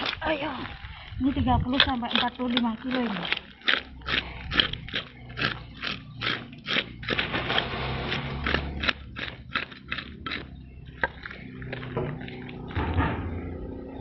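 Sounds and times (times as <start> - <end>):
blade scraping fish scales: 1.7 - 10.2.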